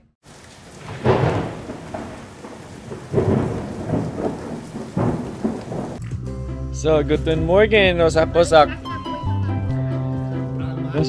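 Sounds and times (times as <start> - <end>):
steady rain: 0.2 - 6.0
thunder rumbling: 0.2 - 6.0.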